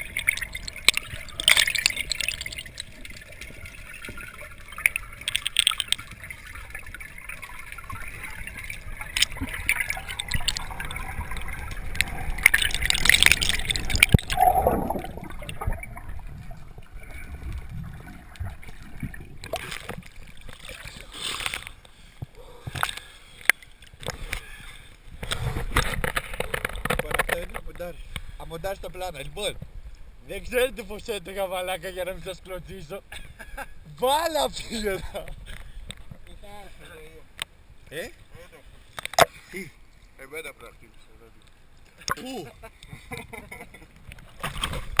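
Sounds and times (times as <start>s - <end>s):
underwater gurgling and bubbling: 0.0s - 21.8s
water splashing and sloshing: 0.0s - 32.6s, 33.2s - 45.0s.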